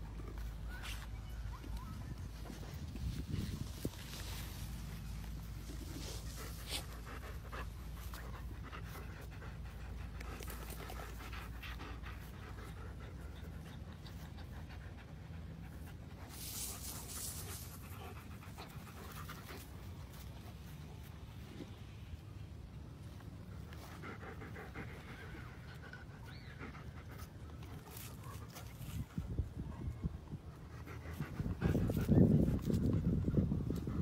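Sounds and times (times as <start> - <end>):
dog panting: 5.7 - 16.2.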